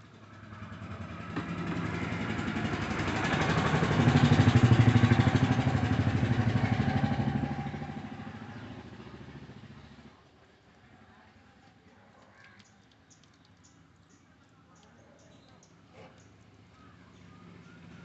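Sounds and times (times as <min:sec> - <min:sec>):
motorcycle engine passing by: 0:00.0 - 0:10.2, 0:16.6 - 0:18.0.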